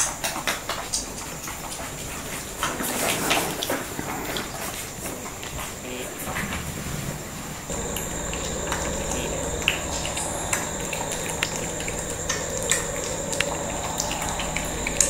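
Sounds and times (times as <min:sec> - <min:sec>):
puppy claws clicking on floor: 0:00.0 - 0:03.7
steady background hum: 0:07.6 - 0:15.0.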